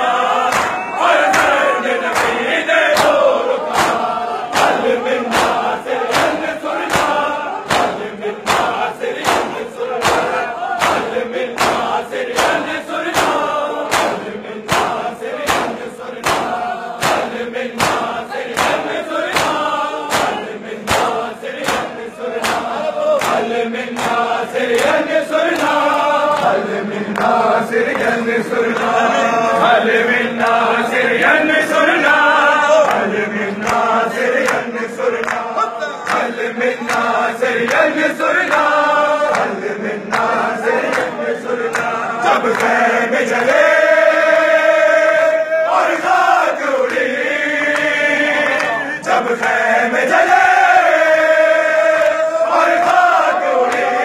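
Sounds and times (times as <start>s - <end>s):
crowd of men chanting: 0.0s - 54.0s
hands beating chests: 0.4s - 28.9s.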